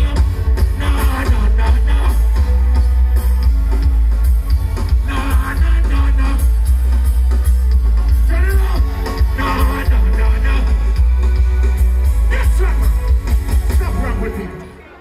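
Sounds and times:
person singing: 0:00.0 - 0:02.5
heavy bass: 0:00.0 - 0:14.7
reggae band music: 0:00.0 - 0:15.0.

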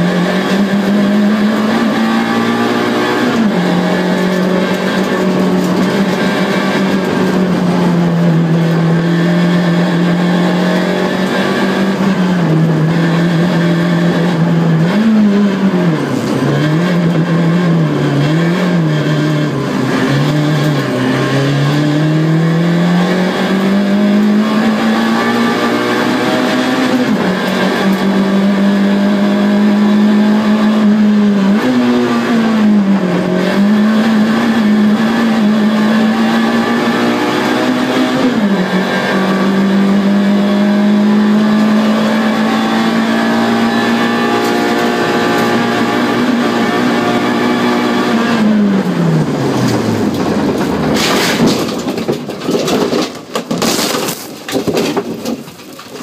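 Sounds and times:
car engine from inside cabin: 0:00.0 - 0:51.0
car crashing and scraping: 0:01.3 - 0:08.8, 0:48.9 - 0:56.0.

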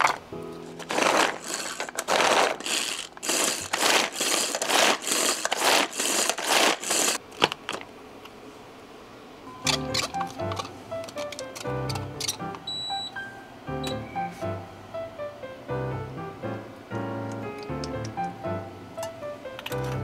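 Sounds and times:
food chopper blades whirring: 0:00.8 - 0:07.2.

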